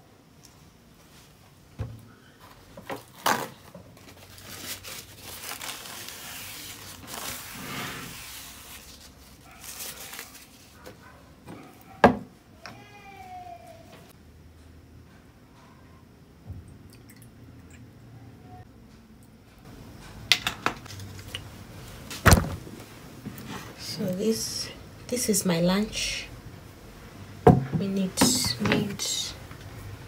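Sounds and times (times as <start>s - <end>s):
plastic crinkling: 2.9s - 11.1s
bottles knocking on table: 27.5s - 28.8s.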